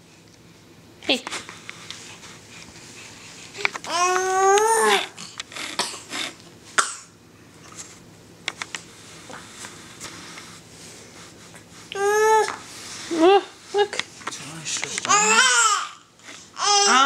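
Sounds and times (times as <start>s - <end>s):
baby crying: 3.9s - 5.2s, 15.1s - 16.0s, 16.6s - 17.0s.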